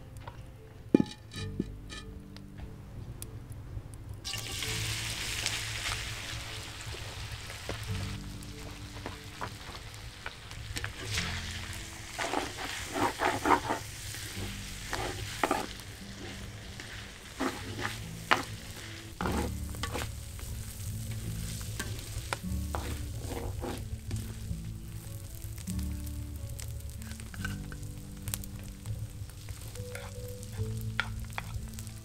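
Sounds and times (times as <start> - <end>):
pork sizzling in a wok: 4.2 - 32.0
spatula scraping a wok: 10.7 - 25.6, 26.5 - 27.8, 29.3 - 32.0.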